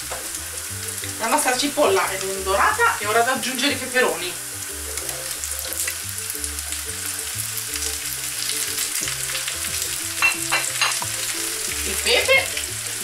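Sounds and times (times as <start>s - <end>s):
peppers sizzling in hot oil: 0.0s - 13.0s.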